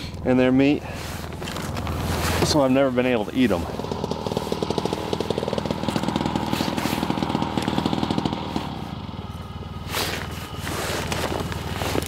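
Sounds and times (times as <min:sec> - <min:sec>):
rustling swish: 0:00.8 - 0:07.3
small engine running: 0:01.0 - 0:12.0.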